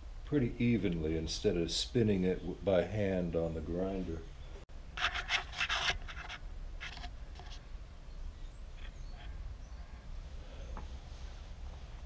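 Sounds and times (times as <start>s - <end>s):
scraping handling noises: 5.0s - 7.6s.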